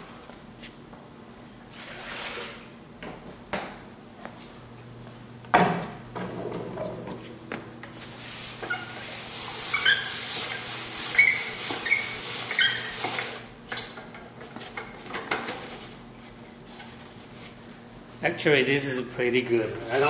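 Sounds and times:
brushes scraping glaze through sieve: 0:08.0 - 0:13.5, 0:19.6 - 0:20.0
short squeaks: 0:09.7 - 0:13.0.

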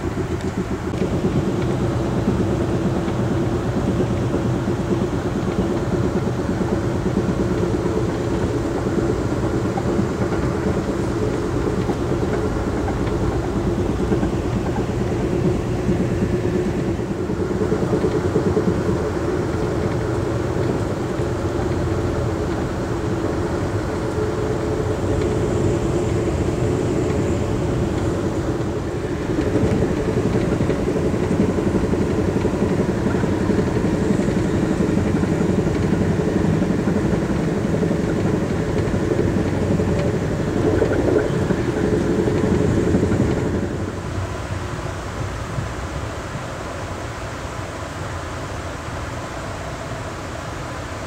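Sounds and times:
train wheels on rails: 0:00.0 - 0:51.0.

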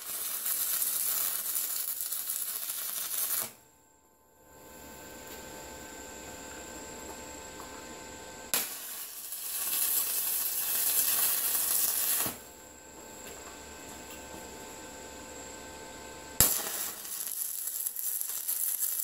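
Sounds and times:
welding arc hissing: 0:00.0 - 0:03.6, 0:08.5 - 0:12.5, 0:16.4 - 0:19.0.

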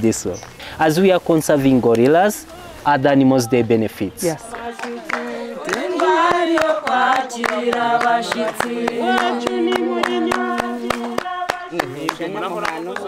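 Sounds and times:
women singing together: 0:04.2 - 0:12.5
hands clapping in steady beat: 0:04.4 - 0:13.0.

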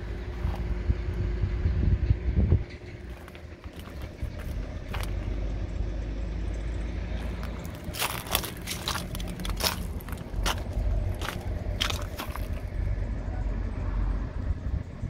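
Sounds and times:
low steady rumble: 0:00.0 - 0:15.0
footsteps crunching on gravel: 0:00.3 - 0:00.7, 0:03.1 - 0:05.3, 0:07.2 - 0:12.8.

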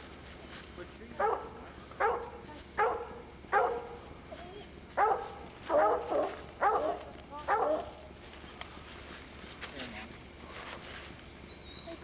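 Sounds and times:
dog barking: 0:01.2 - 0:04.0, 0:05.0 - 0:08.0.

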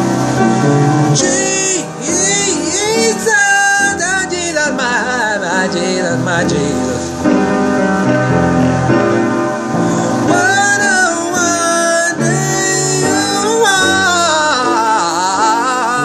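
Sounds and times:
man singing worship song: 0:01.1 - 0:07.2, 0:09.9 - 0:16.0.

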